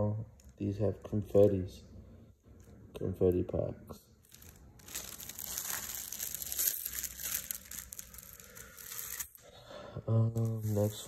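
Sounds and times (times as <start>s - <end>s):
plastic wrapping crinkling: 4.2s - 9.4s, 10.3s - 11.0s.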